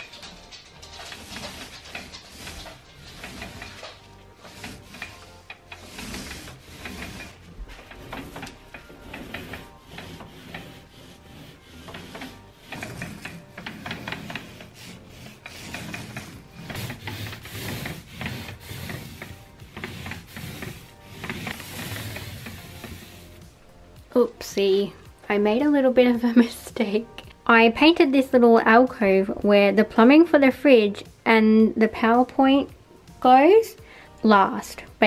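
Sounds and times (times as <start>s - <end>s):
paint roller on wall: 0.0s - 23.7s.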